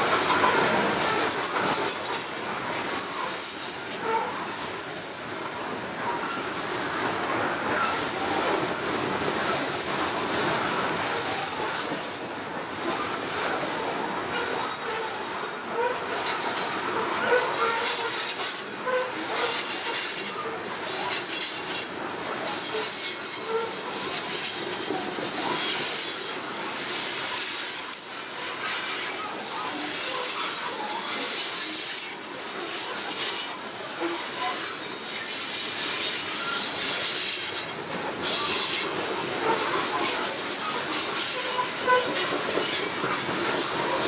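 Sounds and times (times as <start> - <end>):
freight train wheels rumbling: 0.0 - 44.0
wheel squeals: 7.7 - 8.8, 33.1 - 44.0.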